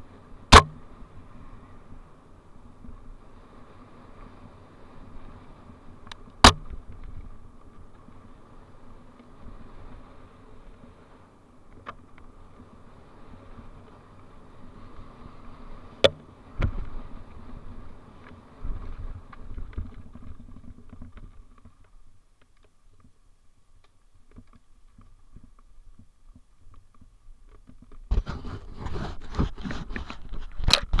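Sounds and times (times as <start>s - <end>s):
camera rattling on bike: 5.6s - 10.0s, 11.6s - 12.8s, 15.9s - 23.2s, 23.9s - 31.0s
hand handling camera: 26.8s - 31.0s.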